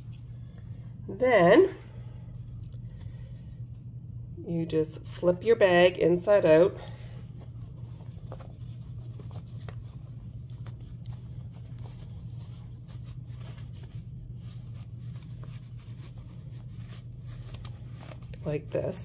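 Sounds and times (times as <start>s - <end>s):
steady low hum: 0.0s - 19.0s
fabric rustling and scratching: 7.3s - 19.0s.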